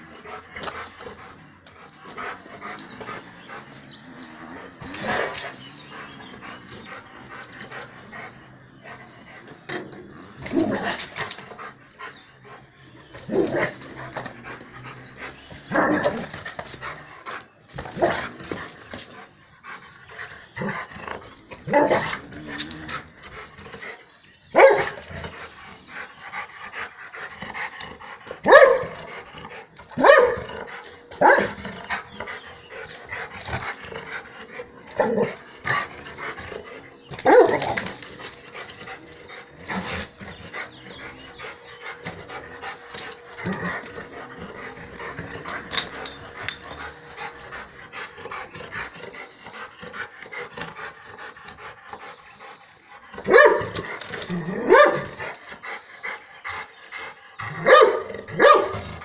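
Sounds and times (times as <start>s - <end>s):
dog barking: 24.6s - 24.9s, 28.5s - 28.9s, 30.0s - 30.5s, 31.2s - 31.6s, 53.3s - 53.8s, 54.6s - 55.2s, 57.6s - 58.9s.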